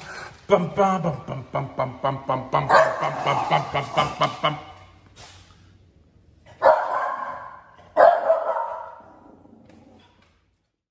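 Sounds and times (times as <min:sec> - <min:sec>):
puppy barking: 0:06.5 - 0:09.2.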